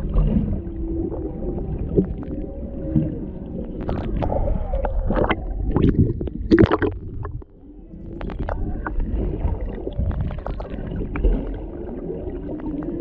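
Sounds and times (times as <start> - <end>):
whale song: 0.0 - 6.2, 7.5 - 13.0
low water rumble: 0.0 - 13.0.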